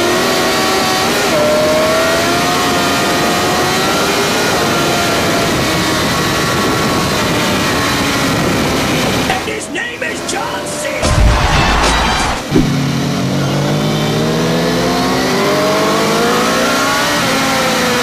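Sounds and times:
motorcycle engine accelerating: 0.0 - 9.3, 11.0 - 18.0
wind rush on microphone: 5.1 - 9.3.

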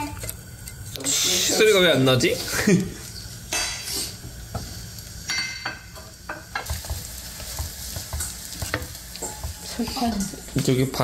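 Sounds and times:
pancakes sizzling in oil: 0.0 - 11.0
wooden spatula knocking on pan: 5.4 - 10.1.

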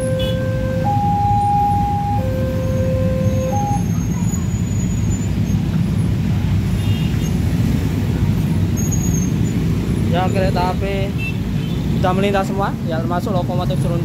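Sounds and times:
level crossing alarm two tones: 0.0 - 4.1.

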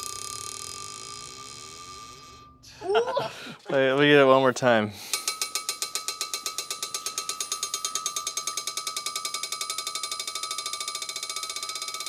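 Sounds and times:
metallic ringing: 0.0 - 2.8, 5.1 - 12.0
ball bearing bouncing on anvil: 5.1 - 12.0.

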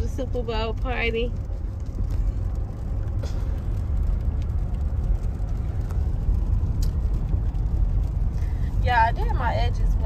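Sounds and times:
engine and tyre rumble: 0.0 - 10.0.

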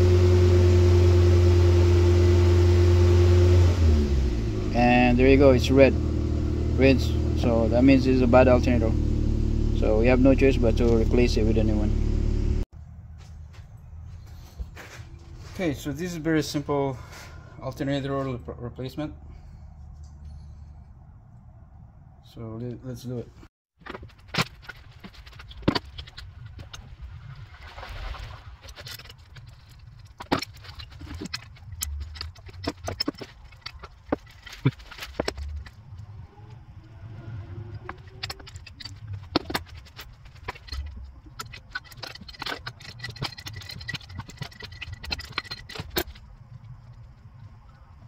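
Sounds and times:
low uneven rumble: 4.3 - 22.4, 26.0 - 48.0
wrench clicks and rattles: 38.0 - 46.2.

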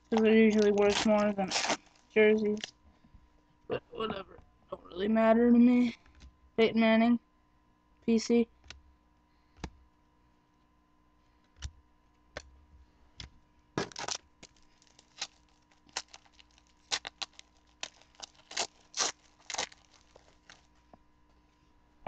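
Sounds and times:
foil wrapper tearing and crinkling: 0.0 - 2.7, 13.8 - 20.8
cards snapping and rustling: 0.1 - 1.8, 13.8 - 20.6.

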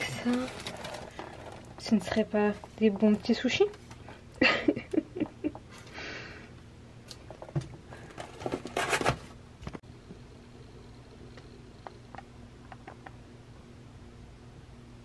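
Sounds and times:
plastic container rustling and clicking: 0.0 - 4.2
faint low hum: 0.0 - 15.0.

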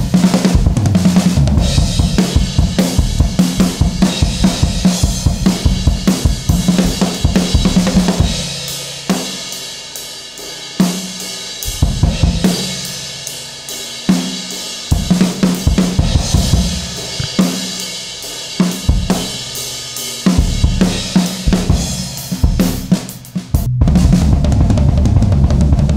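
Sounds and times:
drum kit playing: 0.0 - 25.9.

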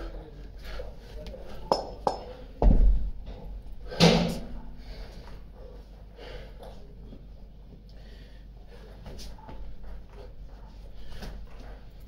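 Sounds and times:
kettlebells thudding on rubber floor: 1.7 - 3.1
hard breathing: 3.7 - 6.9, 7.8 - 12.0.

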